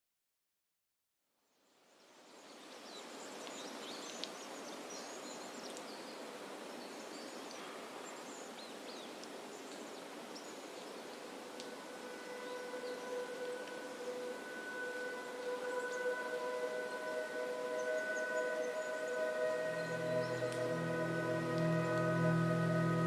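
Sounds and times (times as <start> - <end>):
forest rustling hiss: 1.6 - 23.0
ambient music drone notes: 11.3 - 23.0.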